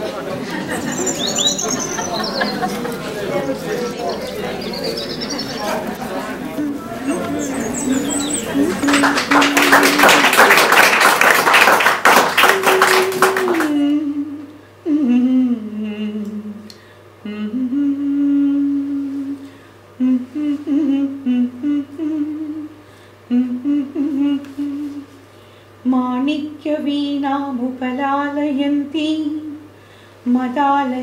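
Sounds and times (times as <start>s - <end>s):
audience clapping: 0.0s - 13.8s
woman humming slow melody: 12.6s - 19.4s, 20.0s - 25.1s.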